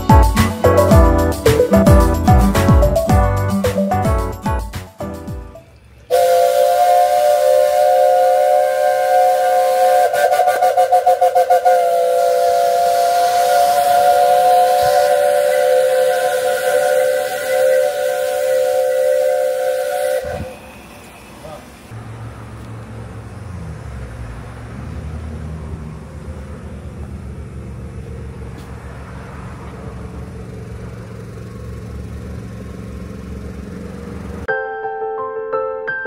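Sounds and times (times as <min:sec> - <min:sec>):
steam locomotive whistle: 0:06.1 - 0:21.8
hissing steam: 0:06.1 - 0:21.9.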